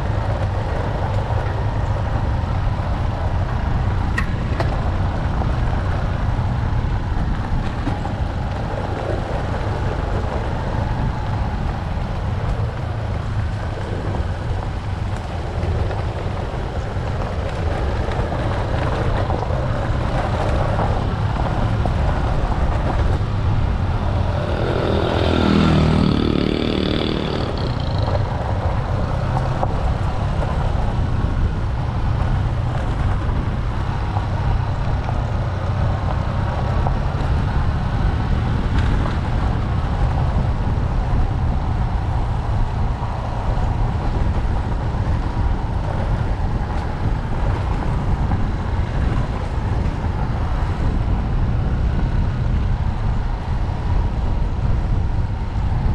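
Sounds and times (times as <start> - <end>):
small motorcycle engine running: 0.0 - 42.2
wind on microphone: 0.0 - 55.9.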